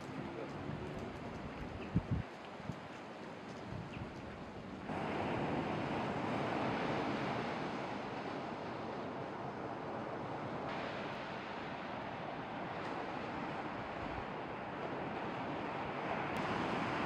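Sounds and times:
wind on microphone: 0.0 - 8.0
sea surf breaking: 4.9 - 17.0.

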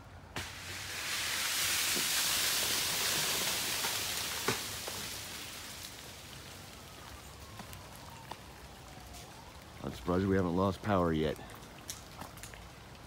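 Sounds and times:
ice falling through branches: 0.4 - 9.3
ice cracking: 0.5 - 6.8.

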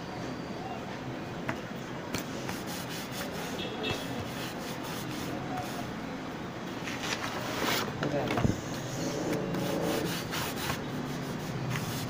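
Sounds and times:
street noise: 0.0 - 12.0
hands rubbing paper: 2.2 - 6.0, 8.5 - 12.0.

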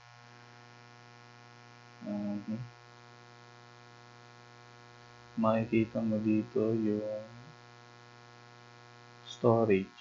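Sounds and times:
electrical mains hum: 0.0 - 10.0
person speaking: 2.0 - 2.6, 5.4 - 7.5, 9.3 - 10.0.

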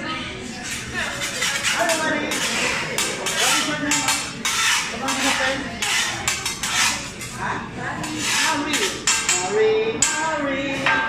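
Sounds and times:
metal spatulas clattering on griddle: 1.2 - 7.3, 8.0 - 10.2.

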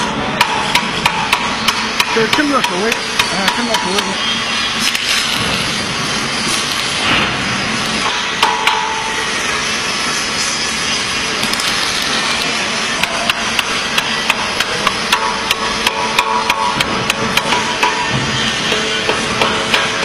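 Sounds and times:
hammer blows with ringing: 0.0 - 4.2, 13.0 - 20.0
workshop noise: 0.0 - 20.0.

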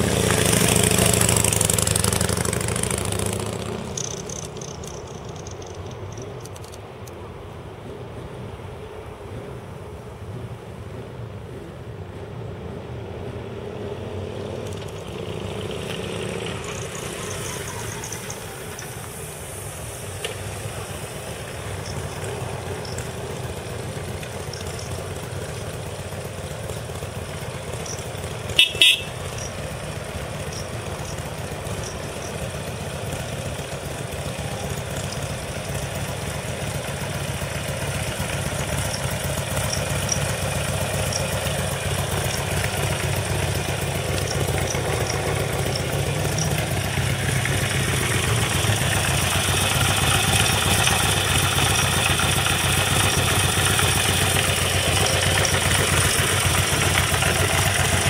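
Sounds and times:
motorcycle engine idling: 0.0 - 7.5, 8.1 - 58.0
motorcycle horn toots: 28.4 - 30.6.

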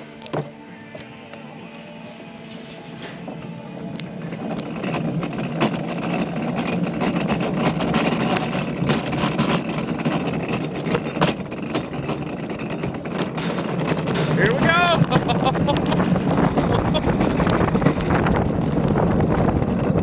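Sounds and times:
cart wheels rattling on concrete: 2.6 - 20.0
small knocks and clatters: 4.3 - 20.0.

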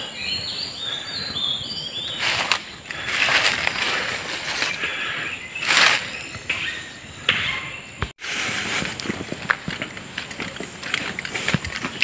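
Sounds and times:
leaves and brush swishing: 2.0 - 6.4
footsteps through undergrowth: 2.0 - 6.8
twigs cracking underfoot: 2.1 - 6.6.

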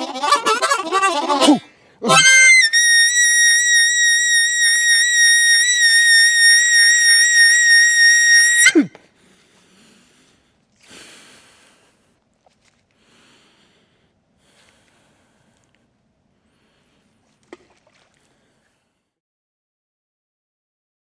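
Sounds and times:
harmonica holding a high note: 0.0 - 8.9
faint rustle: 9.0 - 19.1.

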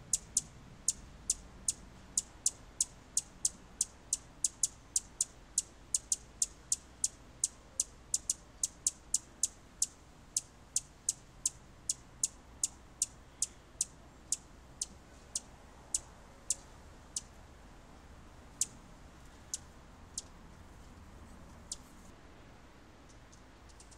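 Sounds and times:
hummingbird chip notes: 0.0 - 17.3.

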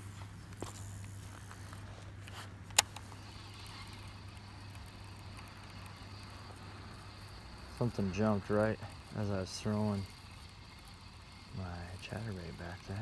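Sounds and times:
steady low hum: 0.0 - 13.0
fishing reel clicks: 2.7 - 13.0.

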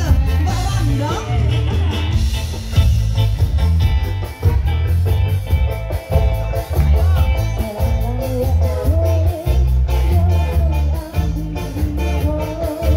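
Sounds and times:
live band music through speakers: 0.0 - 12.9.

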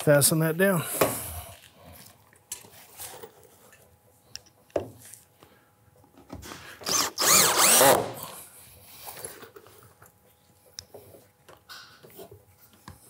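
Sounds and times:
cordless drill motor whine: 6.8 - 8.3.

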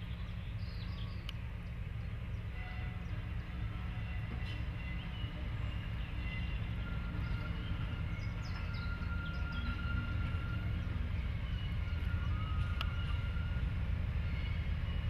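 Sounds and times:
diesel locomotive engine rumbling: 0.0 - 15.0.

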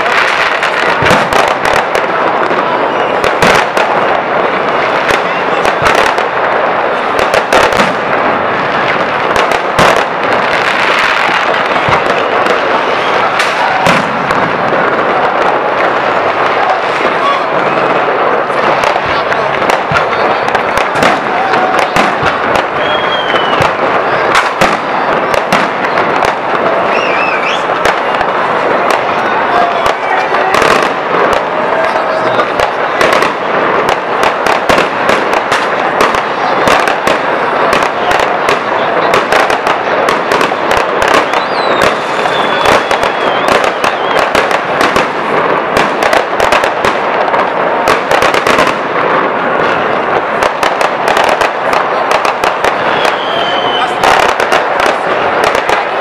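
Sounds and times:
wavering firework whistle: 0.0 - 6.1, 10.7 - 18.9, 19.7 - 33.2, 40.1 - 45.0, 52.4 - 56.0
firework bangs: 0.0 - 56.0
fireworks crackling hiss: 0.0 - 56.0.

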